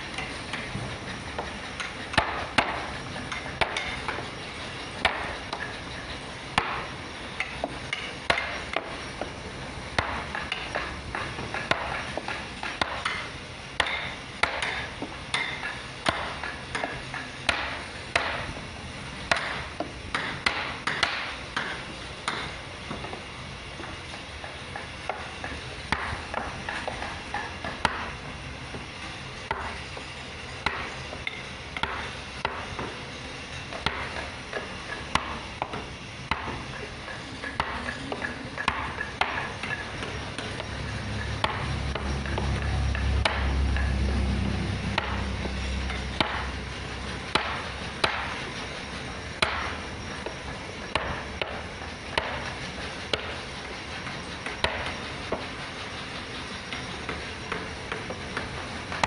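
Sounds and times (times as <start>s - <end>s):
low rumble: 41.3s - 47.1s.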